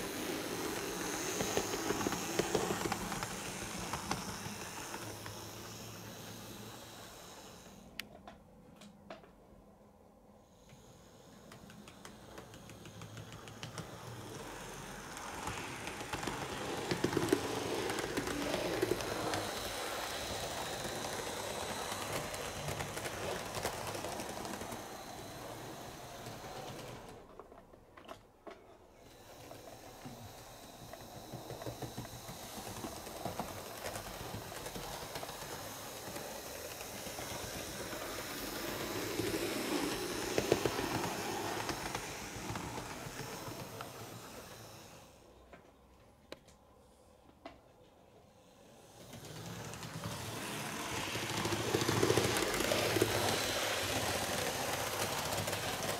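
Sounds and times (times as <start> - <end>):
model train motor whirring: 0.0 - 8.1, 10.6 - 27.8, 29.0 - 45.4, 48.4 - 55.9
wheels clicking over rail joints: 49.1 - 55.9.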